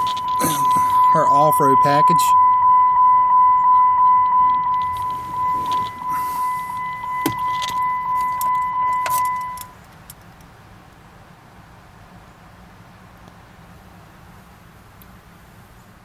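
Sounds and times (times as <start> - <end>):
car door warning chime: 0.0 - 9.8.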